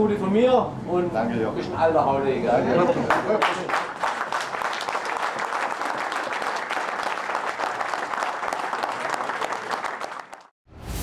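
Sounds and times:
crowd applauding: 3.1s - 10.5s.

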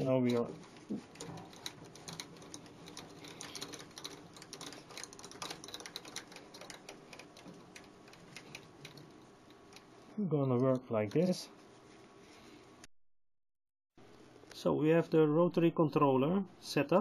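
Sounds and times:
metal parts clicking and rattling: 0.0s - 9.9s.

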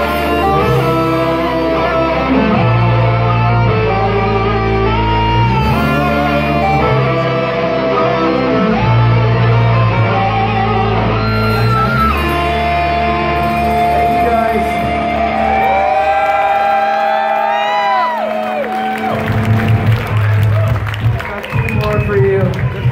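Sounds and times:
held guitar notes bending: 0.0s - 16.1s
live rock band playing: 0.0s - 22.9s.

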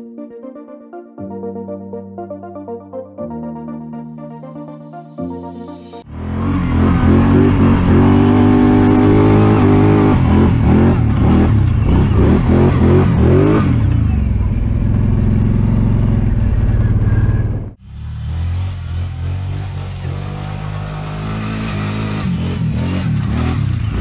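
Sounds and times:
atv engine revving: 6.1s - 24.0s.

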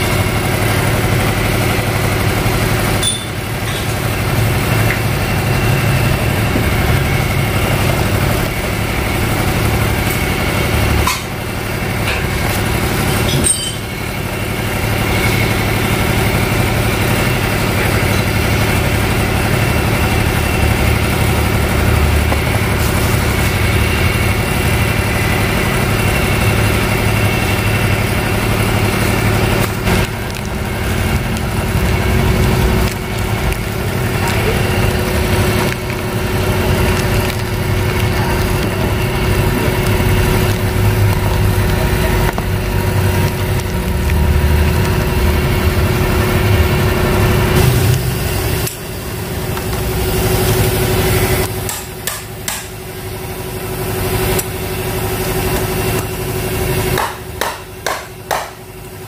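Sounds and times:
engine idling: 0.0s - 59.0s.

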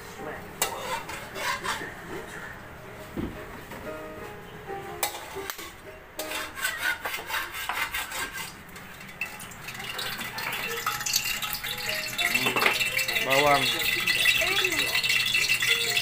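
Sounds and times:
metal ladle scraping wok: 0.6s - 1.9s, 5.0s - 16.0s.

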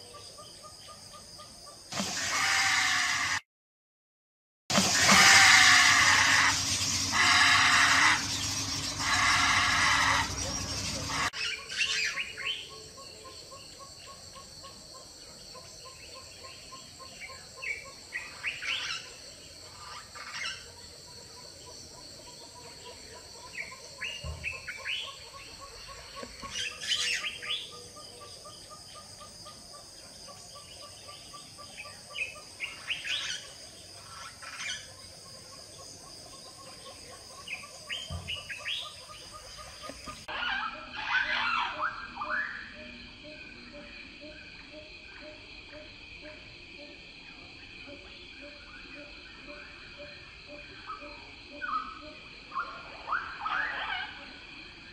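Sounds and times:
insect drone: 0.0s - 3.4s, 4.7s - 54.9s
birds chirping: 4.9s - 45.2s.

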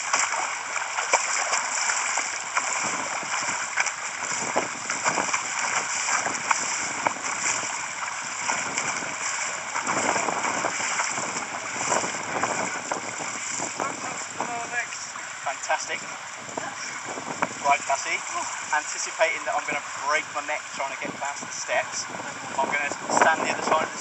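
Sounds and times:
small sharp splashes: 0.0s - 14.3s
underwater bubbles and turbulence: 0.0s - 24.0s.

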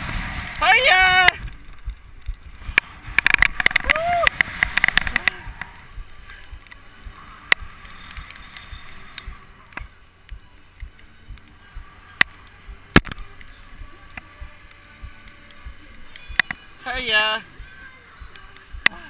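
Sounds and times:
wind buffeting microphone: 1.2s - 11.9s
sharp clicks and knocks: 1.3s - 5.7s.

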